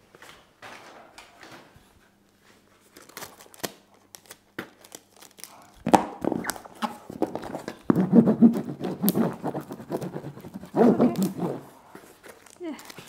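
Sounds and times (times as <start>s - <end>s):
plastic wrapping handled: 2.7s - 13.0s
packing tape crackling: 2.9s - 13.0s.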